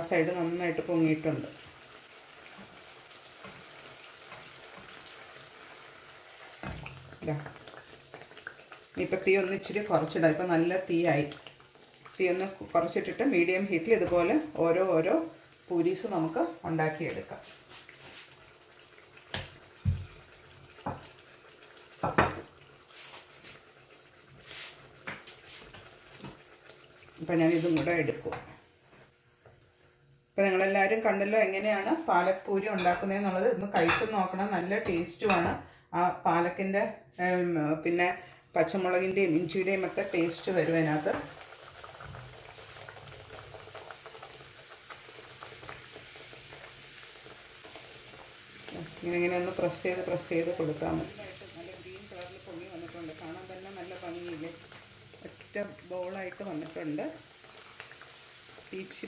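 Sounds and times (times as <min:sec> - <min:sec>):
food frying in hot oil: 0:00.0 - 0:30.3, 0:39.1 - 0:59.0
sharp pops and knocks: 0:06.6 - 0:07.1, 0:19.3 - 0:20.2.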